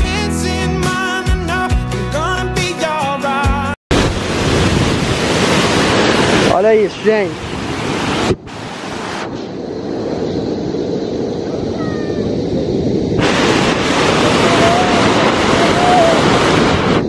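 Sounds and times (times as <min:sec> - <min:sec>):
waterfall roaring over rocks: 0:03.9 - 0:09.2, 0:13.2 - 0:17.0
wind buffeting microphone: 0:03.9 - 0:17.0.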